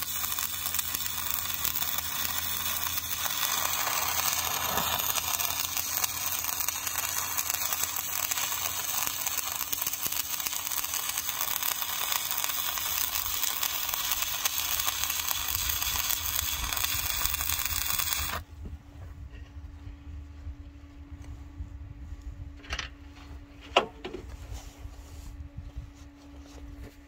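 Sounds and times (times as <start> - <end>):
welding arc crackling: 0.0 - 18.4.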